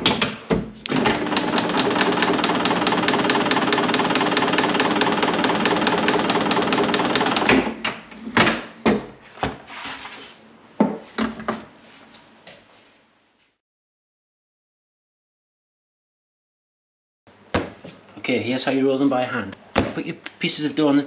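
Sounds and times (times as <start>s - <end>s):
motor-driven machine running: 0.9s - 7.7s.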